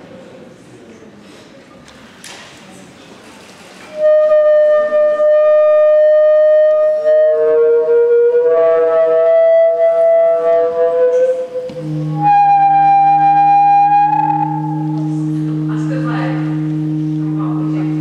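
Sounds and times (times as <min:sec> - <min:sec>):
tubes whistling tones: 0:03.9 - 0:18.0
deep hum: 0:11.6 - 0:18.0.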